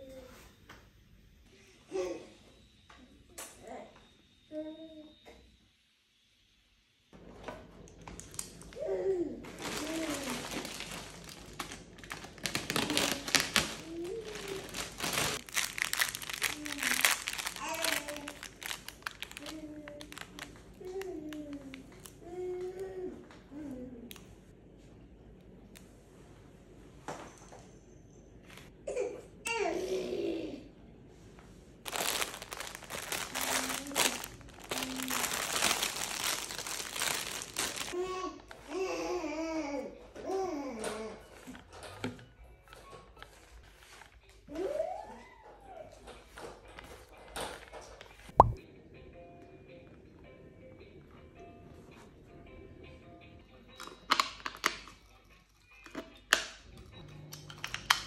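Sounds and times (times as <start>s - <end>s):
plastic bag rustling and crinkling: 9.4s - 22.2s, 31.9s - 38.0s
baby babbling: 16.4s - 18.5s.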